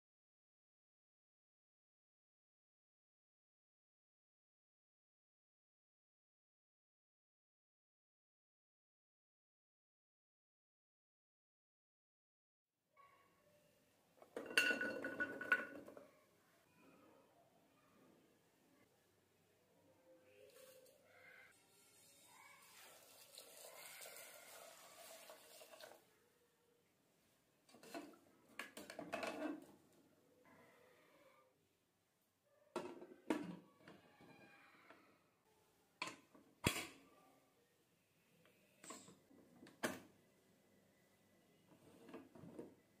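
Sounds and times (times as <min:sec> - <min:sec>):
water pouring into a pot: 0:21.6 - 0:26.1.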